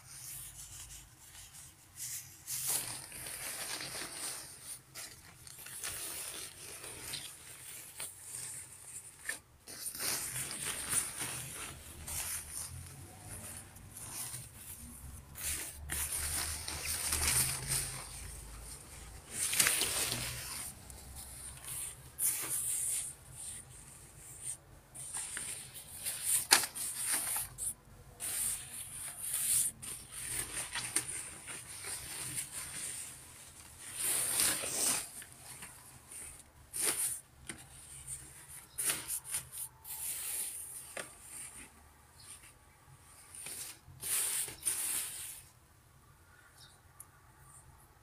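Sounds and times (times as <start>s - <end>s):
nylon jacket rustling: 2.5s - 23.1s.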